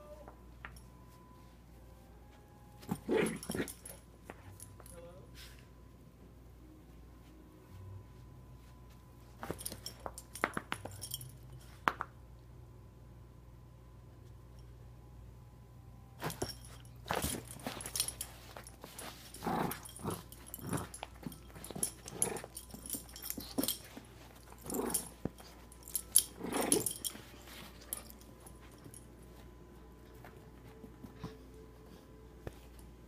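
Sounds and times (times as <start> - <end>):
dog growling in play: 3.0 - 3.8, 19.4 - 21.0, 22.0 - 22.6, 24.6 - 25.2, 26.2 - 27.0.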